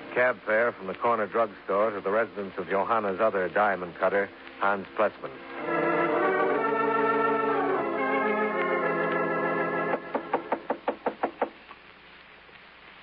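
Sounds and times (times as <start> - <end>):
organ chords: 3.9 - 10.9
knocking on a door: 9.9 - 11.6.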